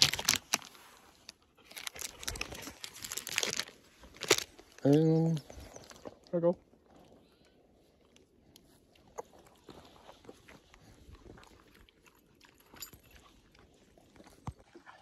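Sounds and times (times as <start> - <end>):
dog chewing jerky: 0.0 - 5.0.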